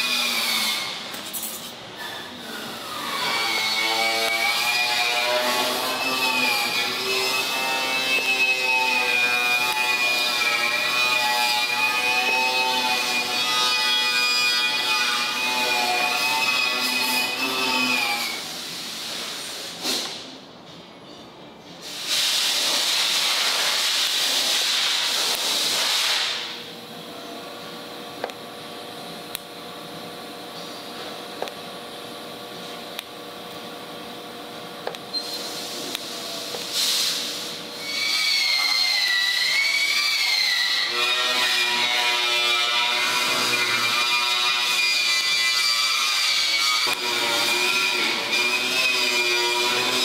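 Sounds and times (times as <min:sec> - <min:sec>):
welding arc humming: 0:00.0 - 0:19.8, 0:21.8 - 0:50.0
loud hiss: 0:21.8 - 0:26.6, 0:35.3 - 0:38.5.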